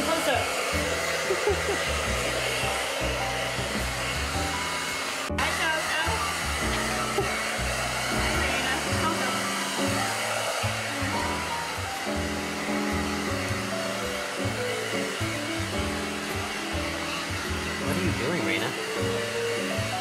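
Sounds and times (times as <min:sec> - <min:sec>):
background music: 0:00.0 - 0:20.0
hair dryer blowing: 0:00.0 - 0:20.0.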